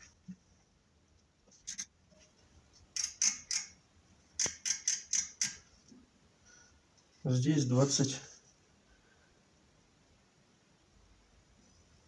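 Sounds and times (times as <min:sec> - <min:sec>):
metallic clicks of measuring tool: 0:02.9 - 0:03.8, 0:04.4 - 0:05.7.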